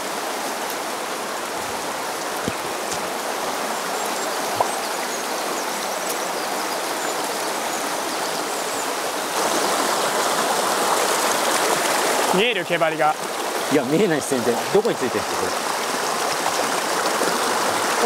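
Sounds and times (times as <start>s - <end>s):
stream rushing over rocks: 0.0s - 18.0s.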